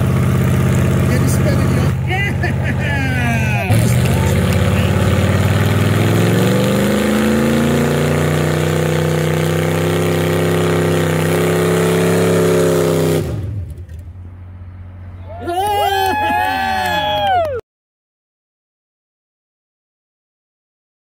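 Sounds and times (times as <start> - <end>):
engine revving hard: 0.0 - 13.8
tire spinning: 0.0 - 17.6.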